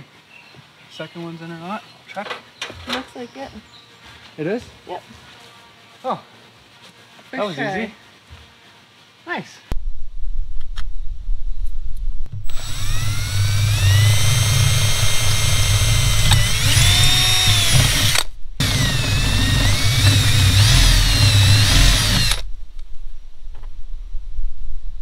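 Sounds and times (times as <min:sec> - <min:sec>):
power drill drilling into metal: 0:12.4 - 0:22.4.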